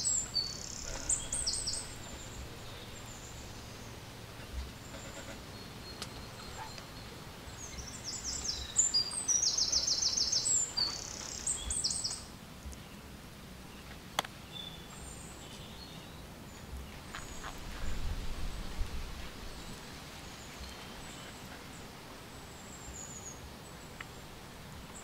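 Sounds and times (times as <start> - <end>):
small bird chirping: 0.0 - 12.9
background hiss: 0.0 - 25.0.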